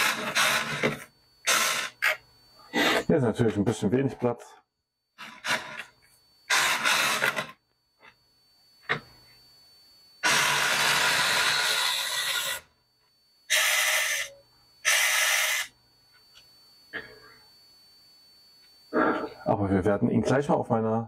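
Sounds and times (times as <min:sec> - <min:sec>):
toy car motor whirring: 0:00.0 - 0:02.2, 0:05.2 - 0:07.6, 0:10.2 - 0:12.8, 0:13.5 - 0:15.8.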